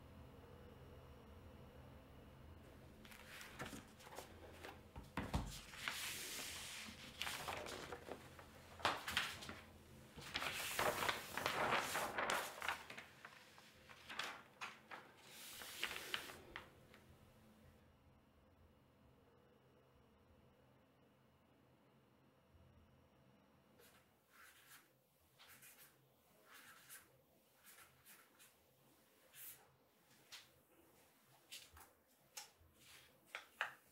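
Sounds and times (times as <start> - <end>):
paper rustling and sliding: 3.0 - 17.0, 23.8 - 33.9.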